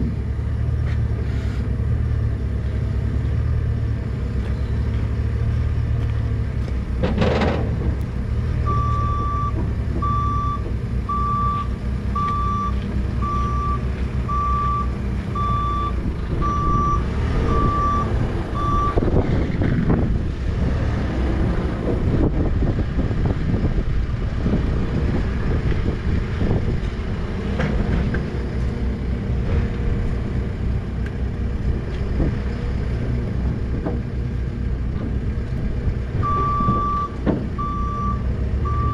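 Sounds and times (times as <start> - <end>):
diesel truck engine idling: 7.6 - 20.7, 28.3 - 38.9
vehicle backup alarm beeping: 8.6 - 19.1, 36.2 - 38.9.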